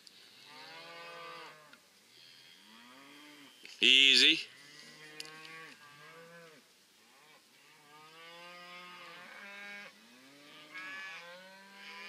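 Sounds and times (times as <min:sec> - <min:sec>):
cows mooing: 0:07.7 - 0:12.0.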